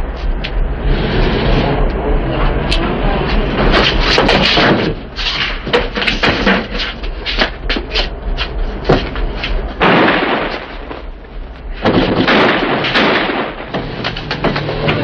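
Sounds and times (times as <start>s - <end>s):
scuffling: 3.2s - 9.8s
fistfight blows and thuds: 3.5s - 6.8s, 11.8s - 15.0s.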